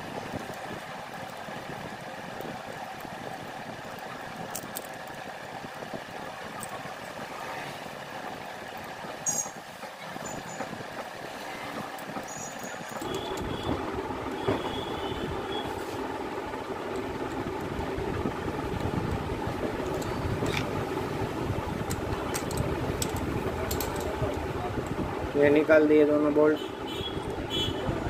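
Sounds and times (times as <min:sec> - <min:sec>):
steady workshop hum: 0:00.0 - 0:28.0
loud low hum: 0:13.0 - 0:28.0
socket wrench clicking: 0:21.9 - 0:24.3.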